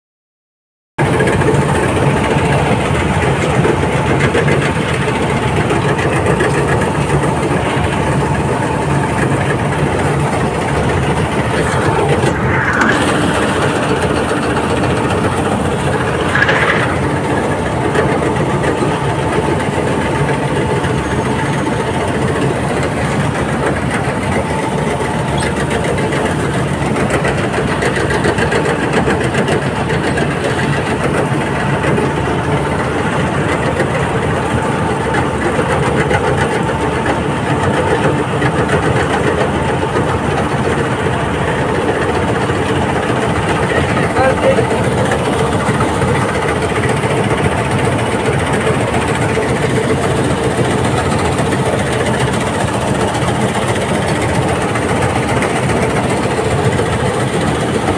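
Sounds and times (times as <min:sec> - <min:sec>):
combine harvester running: 0:01.0 - 0:57.9.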